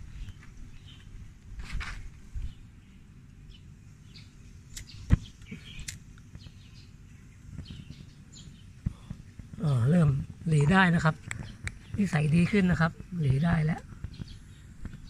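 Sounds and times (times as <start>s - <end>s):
birds chirping: 0.0s - 1.3s, 2.4s - 15.0s
wind rumbling on microphone: 0.0s - 2.9s, 7.4s - 15.0s.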